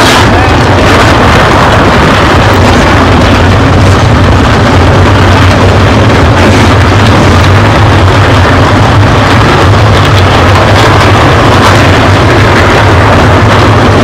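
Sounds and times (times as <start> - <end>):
stock car engines droning: 0.0 - 14.0.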